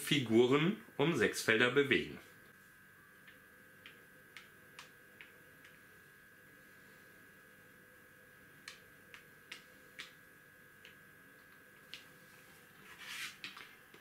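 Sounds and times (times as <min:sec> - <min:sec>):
hand sweeping across board: 0:12.9 - 0:13.4.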